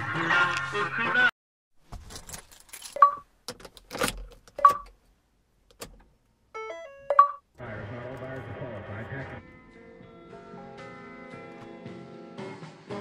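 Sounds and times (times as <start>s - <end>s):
short electronic beeps: 6.6s - 7.4s.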